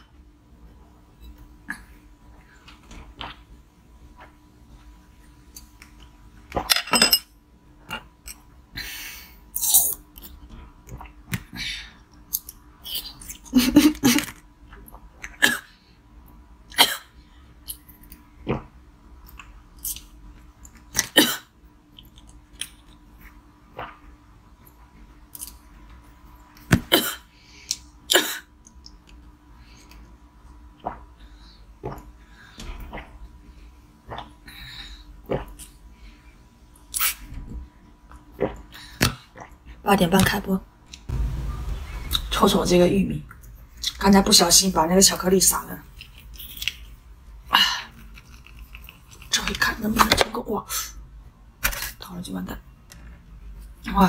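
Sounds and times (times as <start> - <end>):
faint steady hum: 0.0 - 54.0
wet sucking and chewing: 47.9 - 49.4.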